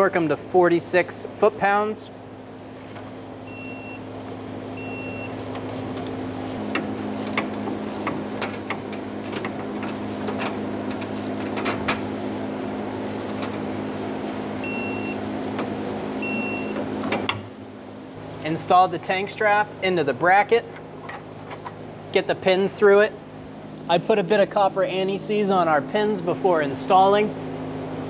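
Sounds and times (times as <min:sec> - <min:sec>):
steady low hum: 0:00.0 - 0:28.0
torque wrench short beeps: 0:03.5 - 0:04.1, 0:04.8 - 0:05.3
ratchet clicking: 0:07.1 - 0:12.0.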